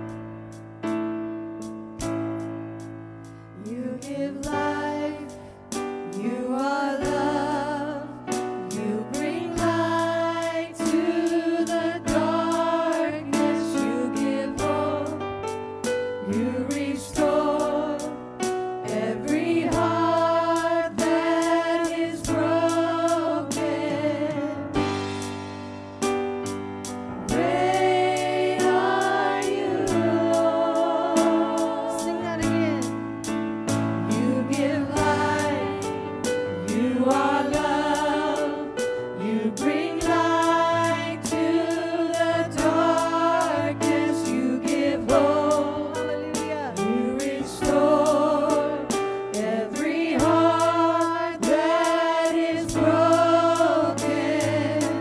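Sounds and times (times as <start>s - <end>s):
voices singing with vibrato: 8.7s - 15.2s, 18.9s - 24.6s, 27.3s - 32.9s, 34.0s - 55.0s
keyboard chords: 17.2s - 43.4s
steady beat: 25.0s - 38.5s.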